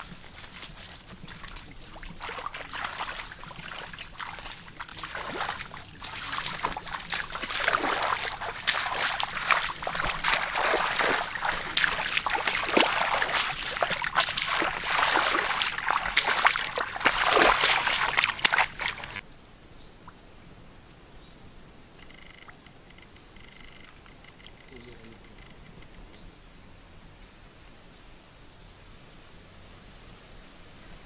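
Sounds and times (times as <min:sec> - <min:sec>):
bodies brushing through undergrowth: 0:00.0 - 0:19.2
footsteps on leaf litter: 0:00.0 - 0:19.2.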